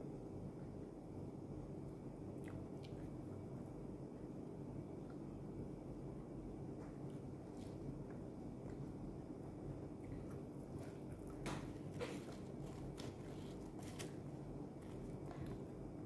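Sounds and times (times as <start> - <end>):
flatbread tearing rustles: 10.6 - 15.7.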